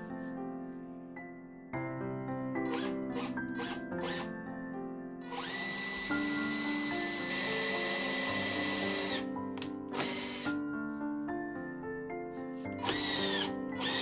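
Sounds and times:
background music: 0.0s - 14.0s
cordless drill boring through wood: 2.6s - 4.3s, 5.2s - 9.3s, 9.9s - 10.6s, 12.8s - 14.0s.

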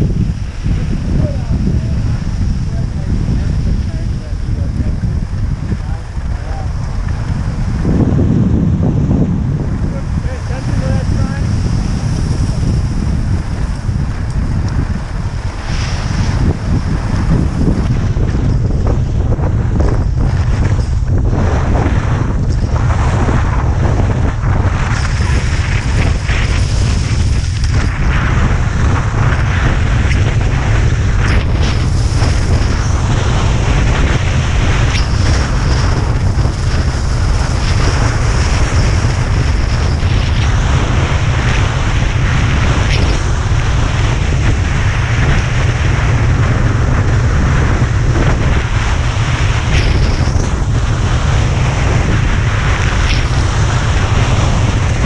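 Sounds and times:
skis scraping over snow: 0.0s - 8.5s, 9.3s - 55.0s
wind buffeting microphone: 0.0s - 55.0s.

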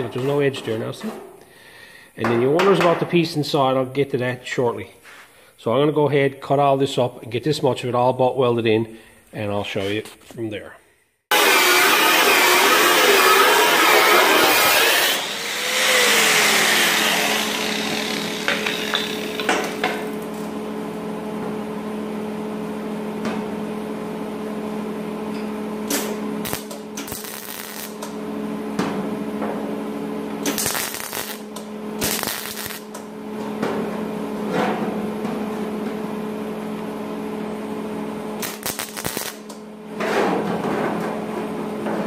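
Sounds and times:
angle grinder on sheet metal: 11.3s - 19.7s, 30.5s - 31.4s, 32.0s - 32.9s
harsh metalwork bursts: 11.3s - 19.9s, 25.9s - 28.2s, 30.4s - 33.1s, 38.4s - 39.6s.

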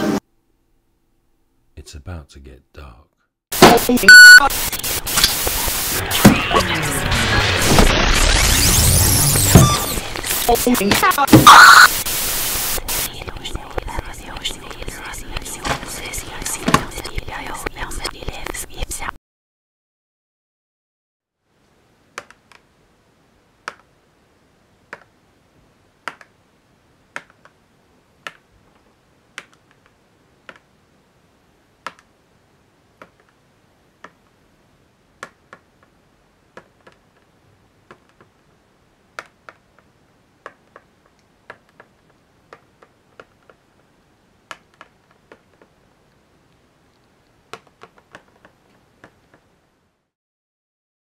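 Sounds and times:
faint hiss: 11.5s - 19.1s.

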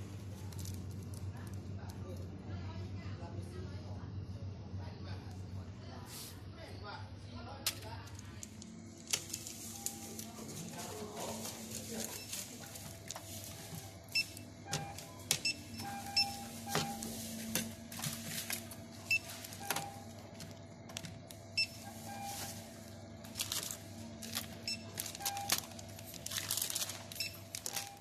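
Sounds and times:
barcode scanner beeps: 9.2s - 20.2s, 21.6s - 23.6s, 24.2s - 26.0s, 27.1s - 28.0s.

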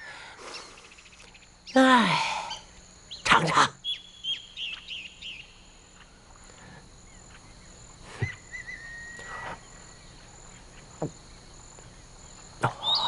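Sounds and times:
insect trill: 0.0s - 13.0s
bird whistled call: 8.2s - 9.5s, 12.7s - 13.0s.

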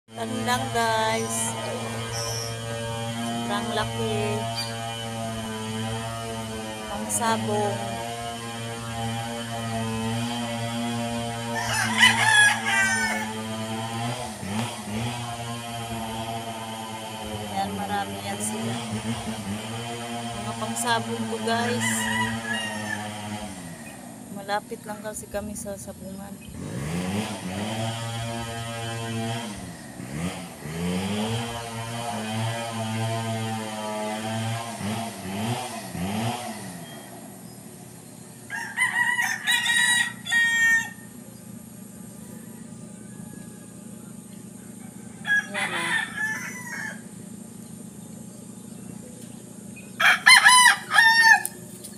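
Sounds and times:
small engine running: 0.1s - 51.9s
steady background hum: 0.1s - 51.9s
rooster crowing: 11.4s - 13.5s, 21.6s - 23.5s, 38.5s - 41.2s, 42.2s - 47.2s, 50.0s - 51.6s.

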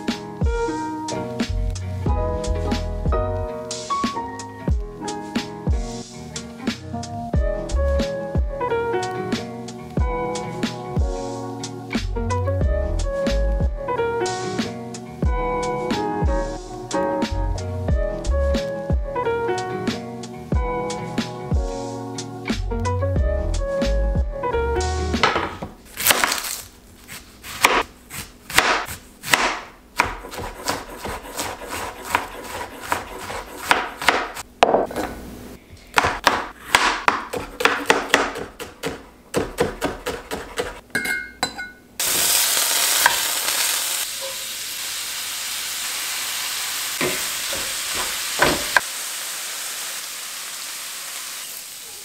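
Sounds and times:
knife chopping on wooden board: 27.1s - 35.1s, 35.9s - 40.8s, 48.0s - 48.8s
meat sizzling in a skillet: 42.0s - 52.0s.

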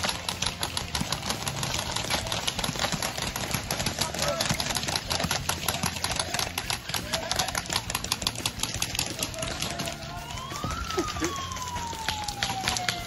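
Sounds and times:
airsoft guns firing: 0.0s - 13.0s
siren wailing: 9.1s - 13.0s.

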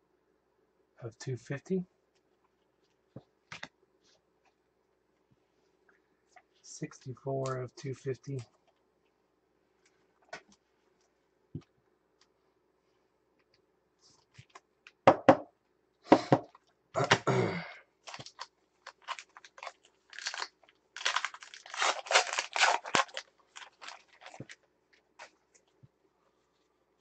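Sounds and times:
plastic crinkling and crackling: 18.0s - 25.8s.

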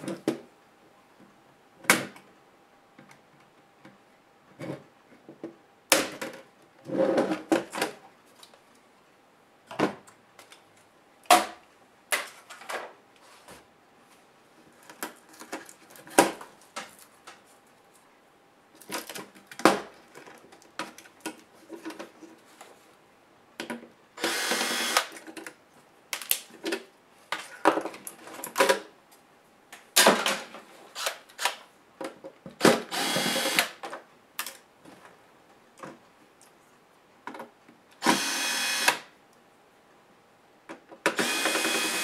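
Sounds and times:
electric screwdriver whirring: 24.2s - 25.1s, 32.9s - 33.8s, 38.0s - 39.0s, 41.2s - 42.0s.

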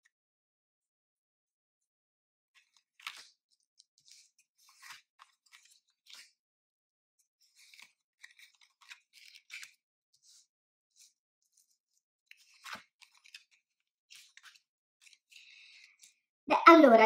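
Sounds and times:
cards rustling and sliding: 2.6s - 6.4s, 7.4s - 16.2s.

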